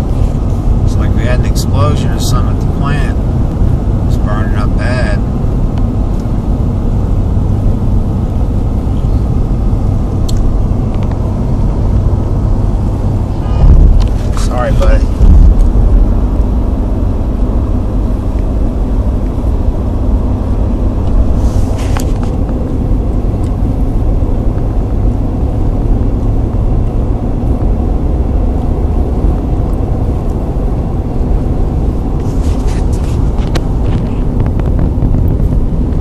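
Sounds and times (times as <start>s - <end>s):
car interior road rumble: 0.0s - 36.0s
short rustles and clicks: 21.1s - 22.6s.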